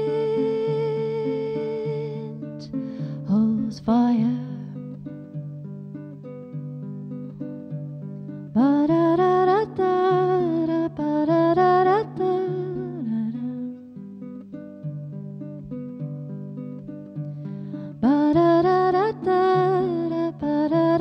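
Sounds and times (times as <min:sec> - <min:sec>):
woman singing wordlessly: 0:00.0 - 0:05.1, 0:08.5 - 0:14.0, 0:17.9 - 0:21.0.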